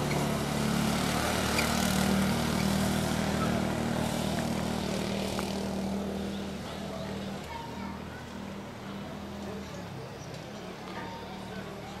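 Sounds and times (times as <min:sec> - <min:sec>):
small buggy engine droning: 0:00.0 - 0:12.0.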